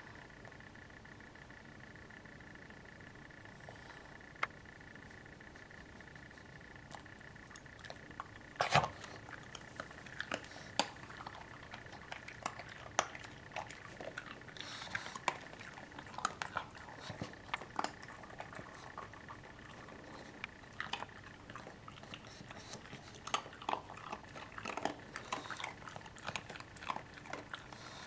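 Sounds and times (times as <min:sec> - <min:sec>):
dog crunching a treat: 0:06.8 - 0:28.0.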